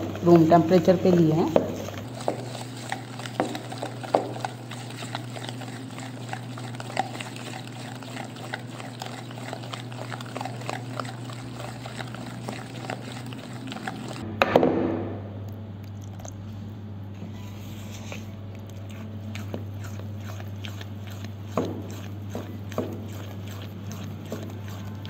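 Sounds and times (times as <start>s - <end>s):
milk pouring: 0.0s - 14.2s, 15.8s - 16.7s, 18.0s - 25.0s
whisk clicking in plastic bowl: 0.0s - 14.2s, 19.4s - 25.0s.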